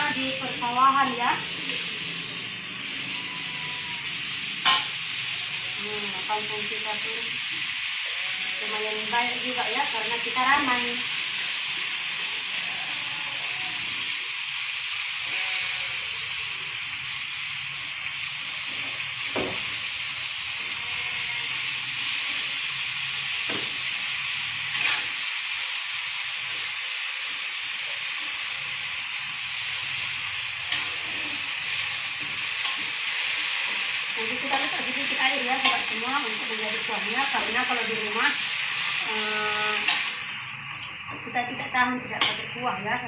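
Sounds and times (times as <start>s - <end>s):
vegetables sizzling in a wok: 0.0s - 43.0s.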